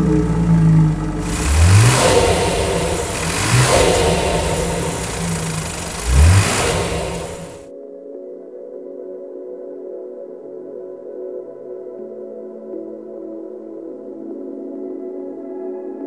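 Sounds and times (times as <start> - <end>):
car engine running and revving: 0.0 - 7.6.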